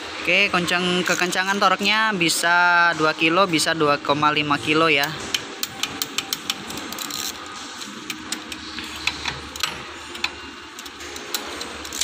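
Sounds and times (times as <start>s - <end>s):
torque wrench clicking: 5.0s - 12.0s.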